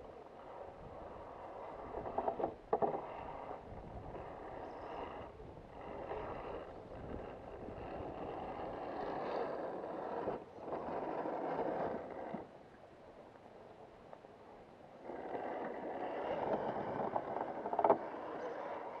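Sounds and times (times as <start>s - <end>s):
electric motor and gears whirring: 0.4s - 12.5s.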